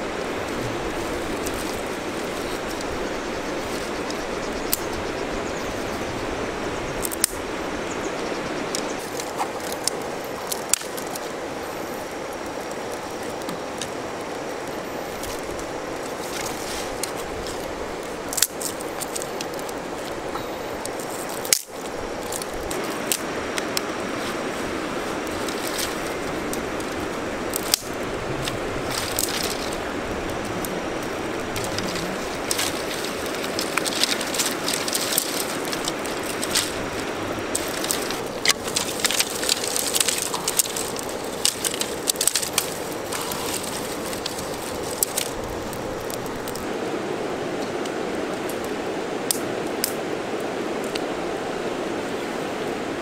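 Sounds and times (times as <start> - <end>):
fire hissing: 0.0 - 52.8
wood fire crackling: 0.0 - 53.0
fire pops and snaps: 7.0 - 7.5, 8.7 - 11.4, 12.0 - 46.7, 49.3 - 50.0.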